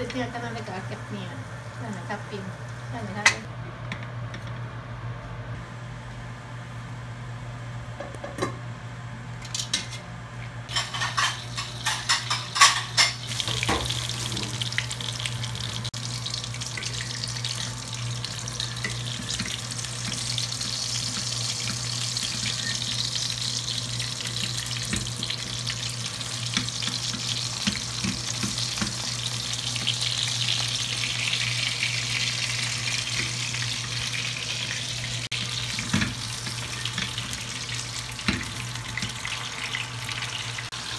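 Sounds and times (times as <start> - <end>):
fish sizzling in a frying pan: 10.7 - 40.9.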